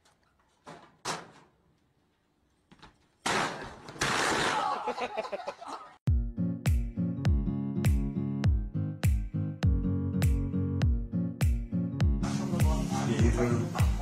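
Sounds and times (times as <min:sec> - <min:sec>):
music with a steady beat: 0:06.1 - 0:14.0.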